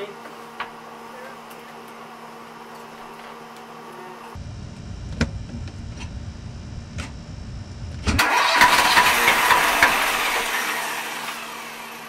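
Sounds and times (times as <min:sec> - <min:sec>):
diesel engine running: 0:03.8 - 0:12.0.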